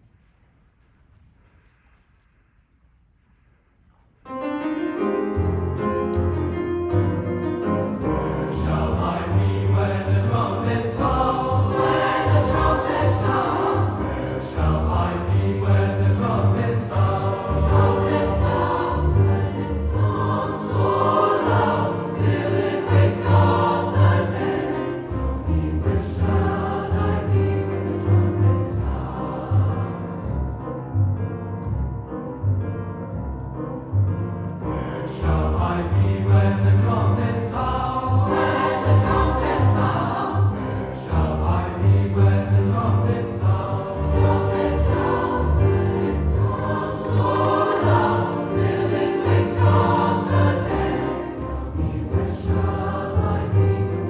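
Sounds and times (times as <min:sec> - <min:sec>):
piano accompaniment: 0:04.2 - 0:54.0
string orchestra: 0:05.0 - 0:54.0
mixed choir singing: 0:07.6 - 0:30.5, 0:34.6 - 0:54.0.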